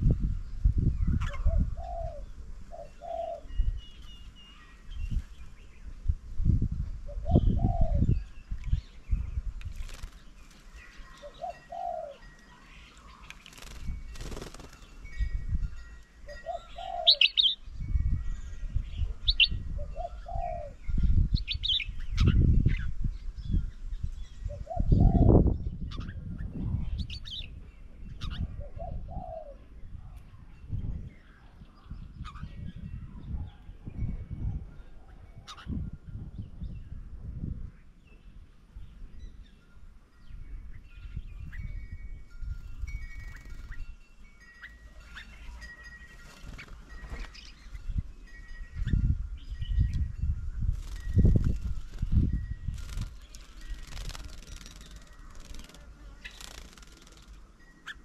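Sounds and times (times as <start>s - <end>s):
small birds chirping: 0.0s - 6.2s, 7.1s - 37.0s, 37.7s - 58.0s
dove cooing: 1.3s - 3.5s, 7.1s - 8.1s, 11.0s - 12.4s, 16.3s - 17.6s, 19.1s - 20.9s, 24.5s - 25.4s, 28.4s - 30.2s.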